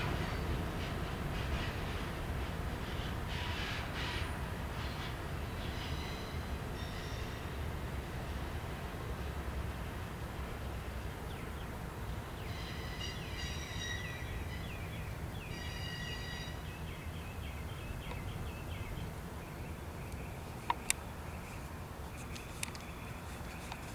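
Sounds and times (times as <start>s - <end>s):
freight train rumble: 0.0s - 23.9s
train wheels squealing: 3.0s - 7.5s, 12.4s - 16.8s.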